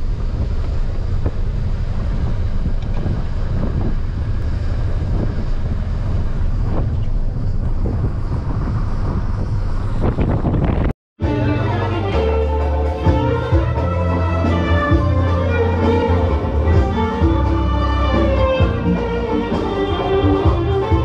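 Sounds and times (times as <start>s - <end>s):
wind buffeting microphone: 0.0s - 11.0s
moving vehicle rumble: 0.0s - 21.0s.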